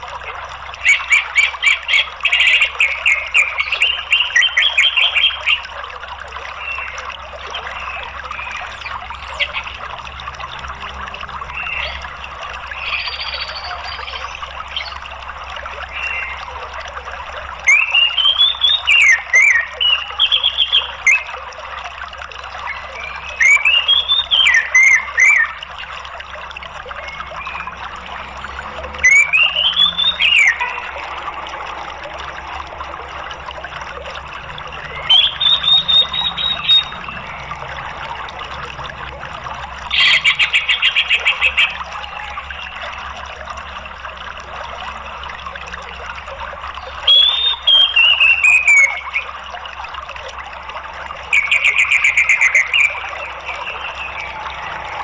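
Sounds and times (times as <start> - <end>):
running water: 0.0 - 55.0
thrush singing whistled notes: 17.5 - 21.4, 22.4 - 43.8, 46.8 - 55.0.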